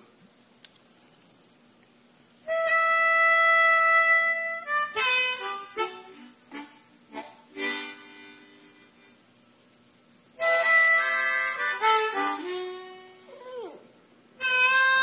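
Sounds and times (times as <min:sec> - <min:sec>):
harmonica playing blues: 0:02.5 - 0:09.2, 0:10.4 - 0:13.6, 0:14.4 - 0:15.0.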